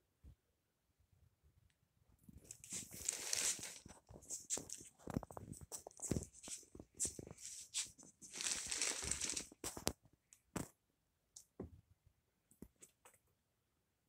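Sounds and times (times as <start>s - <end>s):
rustling and crinkling: 2.2s - 10.8s.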